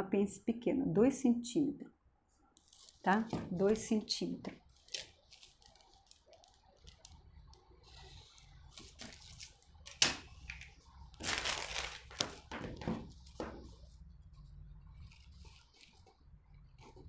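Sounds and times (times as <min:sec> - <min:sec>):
paper rustling: 0:02.6 - 0:04.0, 0:04.7 - 0:07.2, 0:07.9 - 0:13.8, 0:15.0 - 0:16.2
marker pen scratching on paper: 0:13.2 - 0:17.0.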